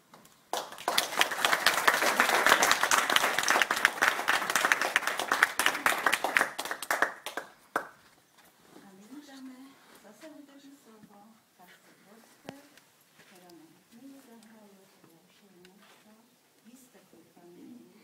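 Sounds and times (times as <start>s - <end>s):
small audience clapping: 0.5s - 8.0s.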